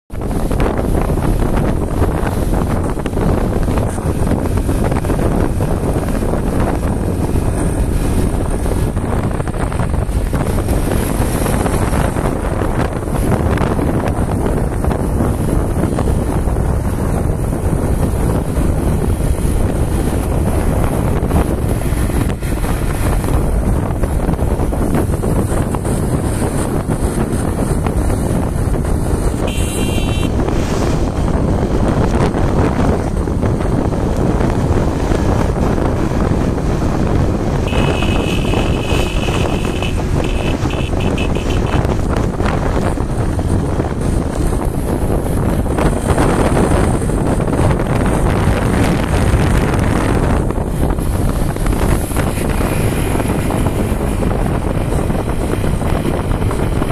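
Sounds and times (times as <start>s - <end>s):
wind buffeting microphone: 0.0s - 56.9s
motorcycle engine: 0.1s - 56.9s
brief high-pitched tone: 29.5s - 30.3s, 37.7s - 41.8s.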